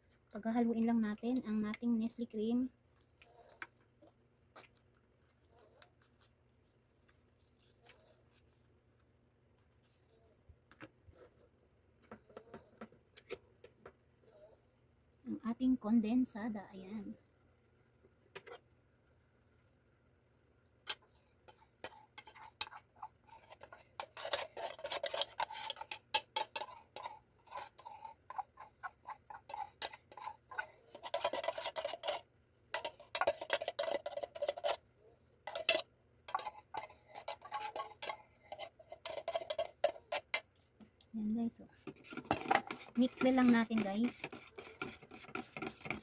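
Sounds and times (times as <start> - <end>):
metal spoon scraping tin can: 20.9 - 34.8, 35.4 - 40.5, 41.8 - 46.0.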